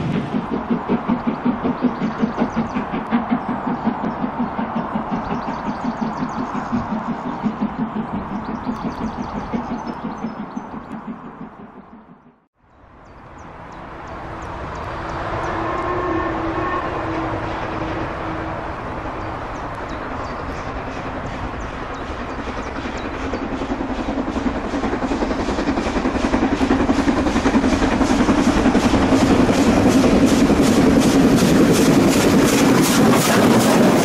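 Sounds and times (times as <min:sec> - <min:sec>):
steam locomotive exhaust beats: 0:00.0 - 0:12.4, 0:13.4 - 0:34.0
distant train whistle: 0:15.0 - 0:18.7.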